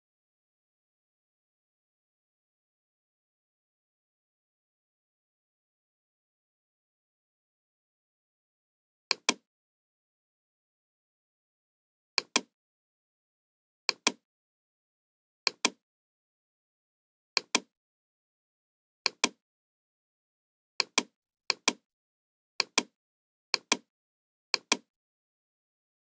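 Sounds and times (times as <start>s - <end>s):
computer mouse clicking: 9.1s - 9.4s, 12.2s - 12.5s, 13.9s - 14.2s, 15.5s - 15.8s, 17.4s - 17.7s, 19.1s - 19.4s, 20.8s - 21.8s, 22.6s - 22.9s, 23.6s - 23.9s, 24.6s - 24.9s.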